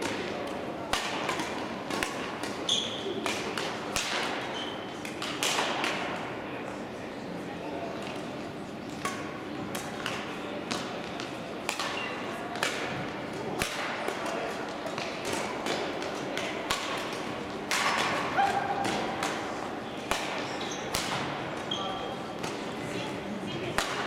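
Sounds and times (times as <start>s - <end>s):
rackets striking shuttlecocks: 0.0s - 6.2s, 9.0s - 21.7s, 23.7s - 24.0s.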